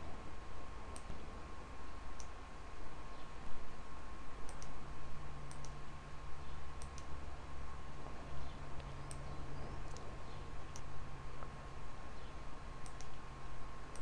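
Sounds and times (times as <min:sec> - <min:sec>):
low electrical hum: 0:00.0 - 0:14.0
mouse buttons clicking: 0:12.8 - 0:13.2.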